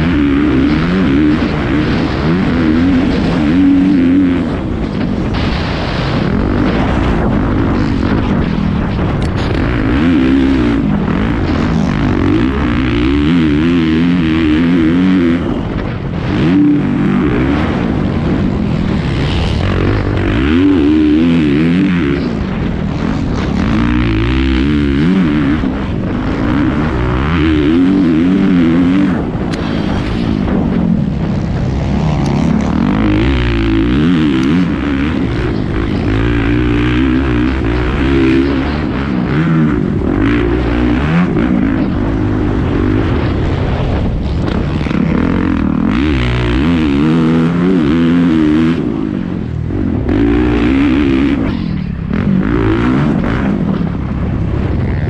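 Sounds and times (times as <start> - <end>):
dirt bike engine revving: 0.0 - 55.0
wind noise: 0.0 - 55.0.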